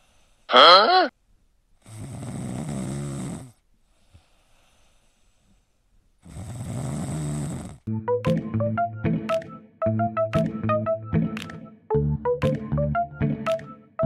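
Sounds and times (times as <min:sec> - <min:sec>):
kitten snoring: 0:01.8 - 0:05.6, 0:06.2 - 0:07.9.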